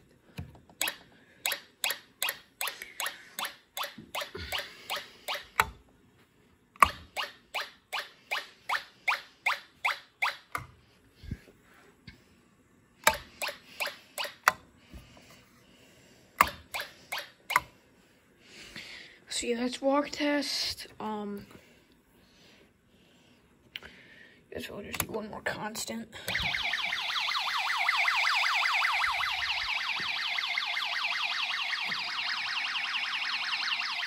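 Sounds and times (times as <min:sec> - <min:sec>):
alarm horn chirping: 0:26.4 - 0:34.0.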